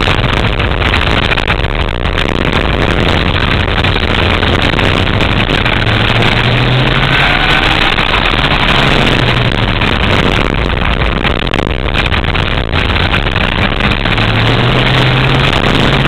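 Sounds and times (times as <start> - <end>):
go-kart engine at full throttle: 0.0 - 16.0
wind noise on microphone: 0.0 - 16.0.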